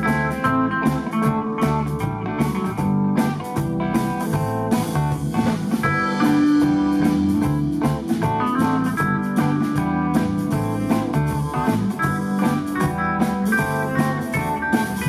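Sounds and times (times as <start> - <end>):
electric guitars: 0.0 - 15.0
live blues-rock band playing: 0.0 - 15.0
steady drum beat: 0.0 - 15.0.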